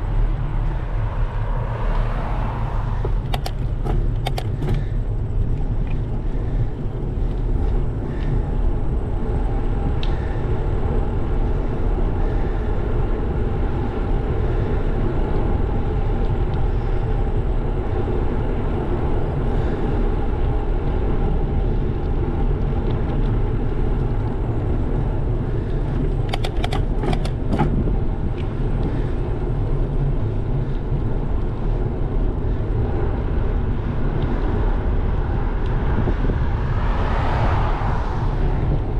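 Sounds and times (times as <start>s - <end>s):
tyre noise on asphalt: 0.0s - 38.9s
wind buffeting microphone: 0.0s - 38.9s
sharp clicks or rattles: 3.1s - 4.8s, 26.1s - 27.8s.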